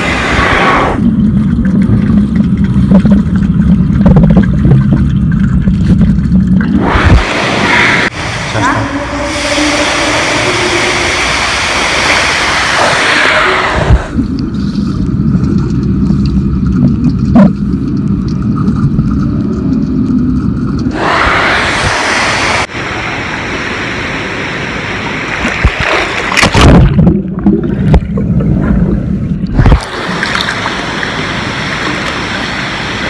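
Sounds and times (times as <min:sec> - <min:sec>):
water surface hiss: 0:00.0 - 0:01.0, 0:06.8 - 0:15.1, 0:20.9 - 0:26.4, 0:29.6 - 0:33.0
water sloshing over microphone: 0:00.0 - 0:22.7, 0:25.3 - 0:33.0
underwater rumbling and gurgling: 0:00.0 - 0:33.0.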